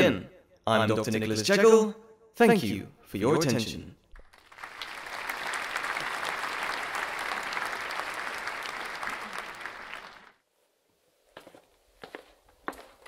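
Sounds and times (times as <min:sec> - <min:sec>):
audience applauding: 0:04.2 - 0:10.4.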